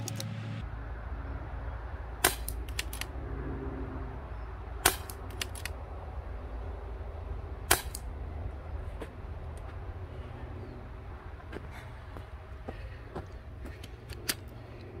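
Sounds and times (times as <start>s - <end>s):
air rifle shots: 2.2s - 3.1s, 4.8s - 5.8s, 7.6s - 8.1s.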